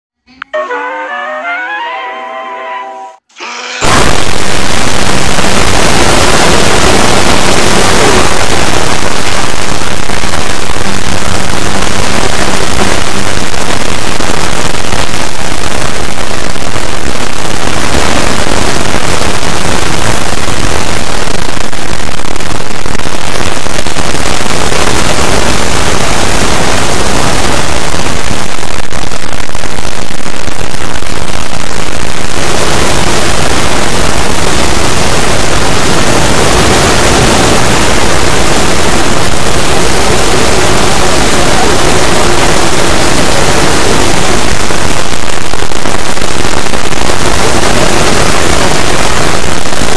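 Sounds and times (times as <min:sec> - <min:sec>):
overlaid sped-up audio clips: 0:00.2 - 0:49.9.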